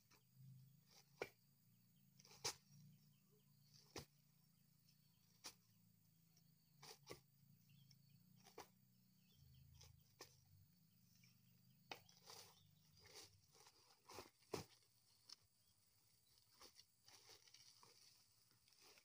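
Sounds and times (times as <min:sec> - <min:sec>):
coconut husks dropped into sack: 0:13.0 - 0:15.0.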